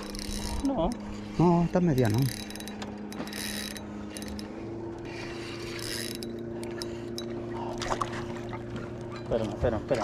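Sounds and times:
fishing reel whirring and ticking: 0:00.0 - 0:07.5
steady low hum: 0:00.0 - 0:10.0.

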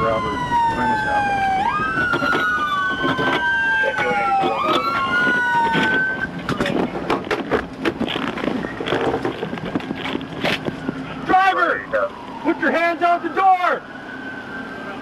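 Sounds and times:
police sirens wailing: 0:00.0 - 0:15.0
scattered clicks and knocks: 0:02.0 - 0:11.0.

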